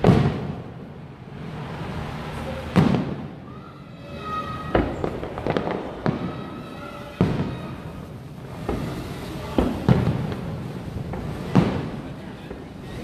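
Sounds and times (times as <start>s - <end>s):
firework boom: 0.0s - 0.9s, 2.7s - 3.4s, 4.6s - 12.7s
firework bangs: 0.0s - 13.0s.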